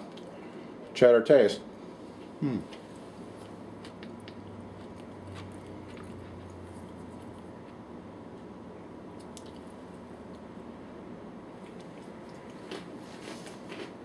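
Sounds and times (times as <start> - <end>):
steady low hum: 0.0 - 14.0
fingers squishing soft cheese: 9.1 - 10.5.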